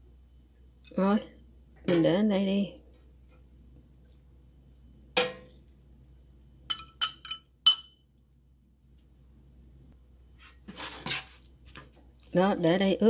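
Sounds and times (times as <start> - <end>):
soft wet handling sounds: 2.8 - 4.5, 10.3 - 12.4
tongs clinking on steel pan: 6.7 - 7.9.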